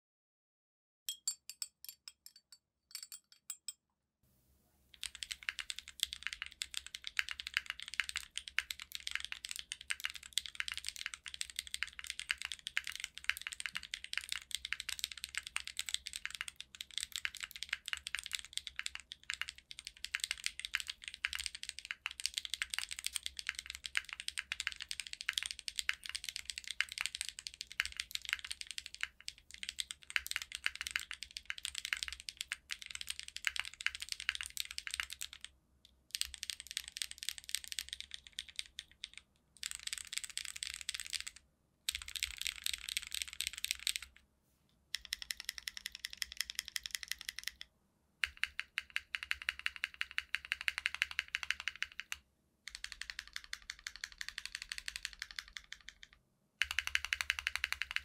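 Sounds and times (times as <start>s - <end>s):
spoon clinking on glass jar: 1.1s - 3.8s
fast typing on keyboard: 5.0s - 35.5s, 36.1s - 44.1s, 45.0s - 47.6s, 48.2s - 58.0s.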